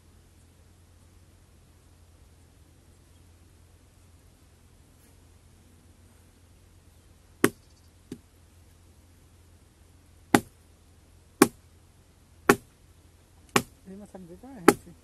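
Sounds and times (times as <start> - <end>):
axe chopping into tree trunk: 11.4 - 11.6, 12.5 - 12.7, 13.5 - 13.7.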